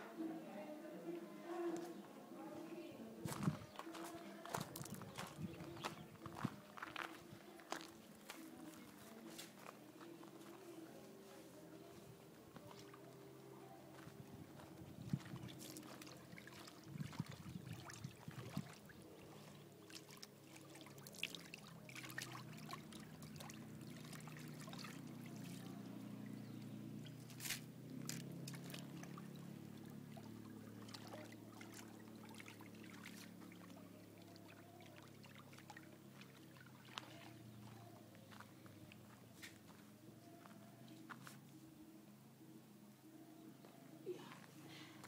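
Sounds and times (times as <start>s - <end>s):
water sloshing in a plastic basin: 15.0s - 39.7s.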